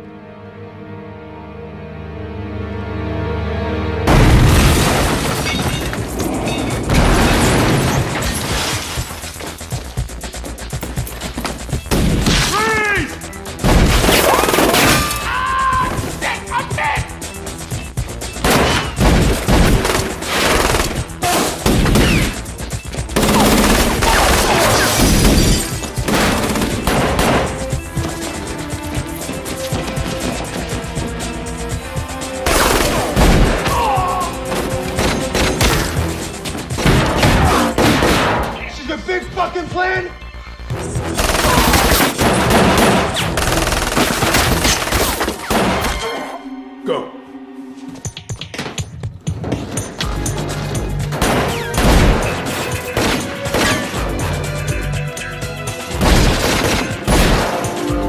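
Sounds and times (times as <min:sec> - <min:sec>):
action score music: 0:00.0 - 0:58.0
rapid handgun fire: 0:23.2 - 0:24.7, 0:41.2 - 0:45.8.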